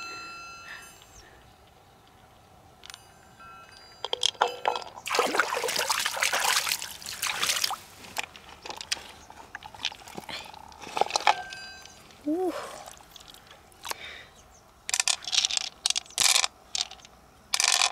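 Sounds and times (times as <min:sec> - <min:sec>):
water dripping: 0:04.1 - 0:07.8, 0:12.8 - 0:14.0
water splashing and sloshing: 0:04.1 - 0:14.0
light hard clinks: 0:10.9 - 0:12.2.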